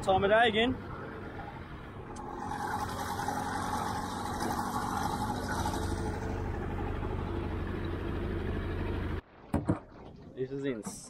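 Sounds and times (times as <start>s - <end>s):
vehicle engine running: 0.8s - 9.2s.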